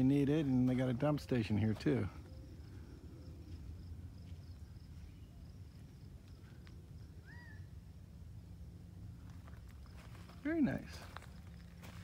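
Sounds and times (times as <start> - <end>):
high insect drone: 0.0 - 12.0
rising bird chirp: 6.4 - 8.0.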